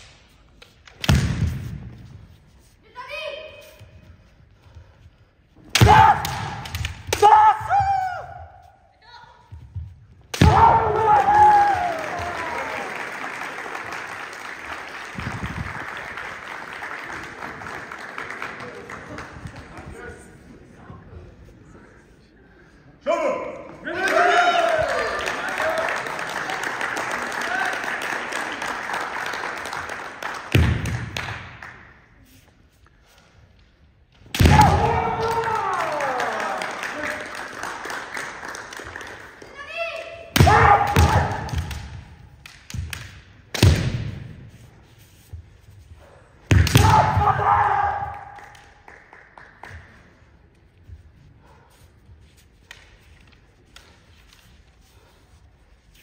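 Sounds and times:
loud drawn-out shout: 0:10.4 - 0:13.0, 0:23.1 - 0:26.0, 0:34.5 - 0:36.7, 0:39.6 - 0:41.4, 0:46.8 - 0:48.4
applause and crowd noise: 0:10.8 - 0:20.6, 0:23.9 - 0:32.2, 0:34.9 - 0:40.3, 0:48.0 - 0:50.4.

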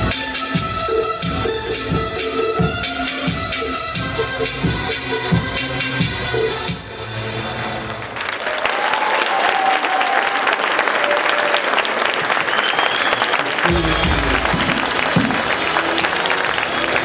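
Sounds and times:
dance music: 0:00.0 - 0:08.0, 0:13.5 - 0:17.0
audience applauding: 0:08.0 - 0:17.0
crowd cheering and shouting: 0:08.4 - 0:11.8, 0:13.1 - 0:17.0.

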